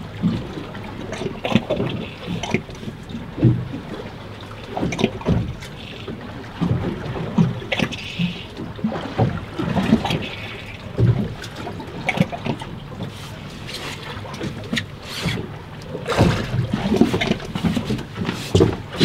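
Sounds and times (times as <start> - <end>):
waves slapping boat hull: 0.0 - 19.0.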